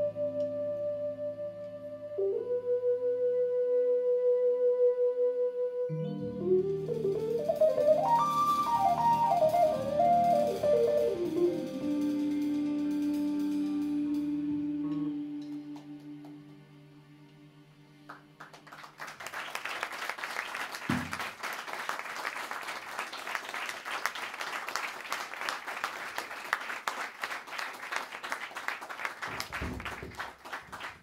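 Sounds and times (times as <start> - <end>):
audience applauding: 18.1 - 31.0.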